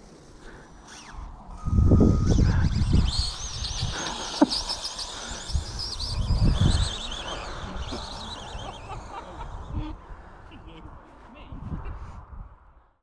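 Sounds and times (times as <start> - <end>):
wind buffeting microphone: 0.9 - 13.0
small birds chirping: 2.1 - 10.8.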